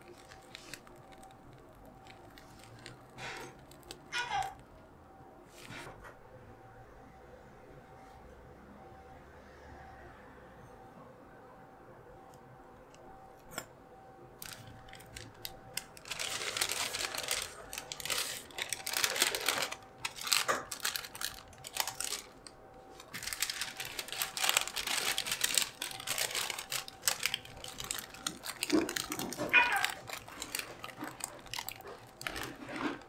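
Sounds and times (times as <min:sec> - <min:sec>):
paper wrapper crinkling: 0:00.0 - 0:04.6, 0:14.4 - 0:33.0.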